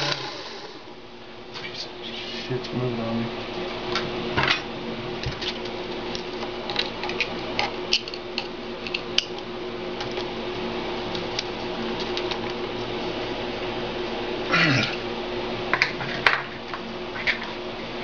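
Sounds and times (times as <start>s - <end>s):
lathe motor hum: 0.0s - 0.9s.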